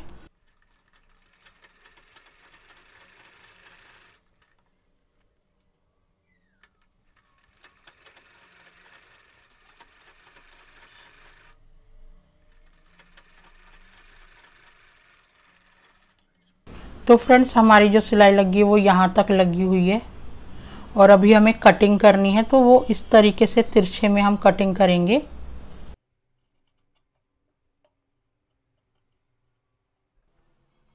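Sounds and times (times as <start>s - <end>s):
sewing machine stitching: 0.0s - 4.8s, 6.4s - 11.6s, 12.4s - 16.6s.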